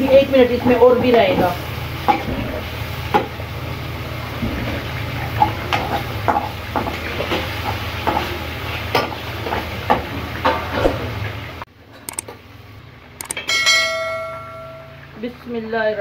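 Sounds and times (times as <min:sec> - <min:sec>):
chicken deep-frying and sizzling: 0:00.0 - 0:11.7.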